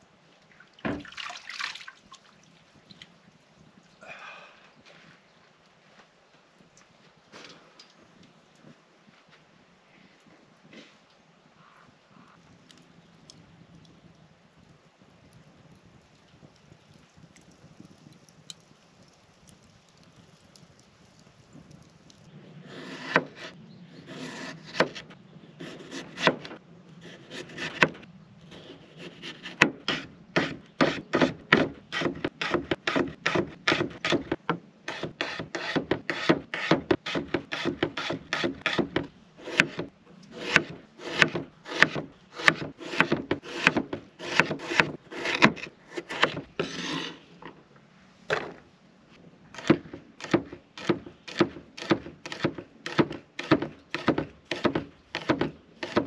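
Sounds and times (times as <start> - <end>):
knife chopping on wooden board: 29.0 - 47.0, 49.6 - 56.0.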